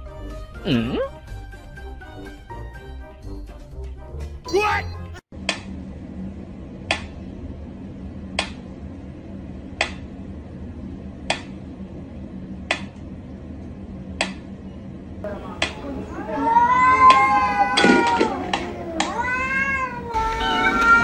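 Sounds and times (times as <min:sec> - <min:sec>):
steady low hum: 0:05.3 - 0:21.0.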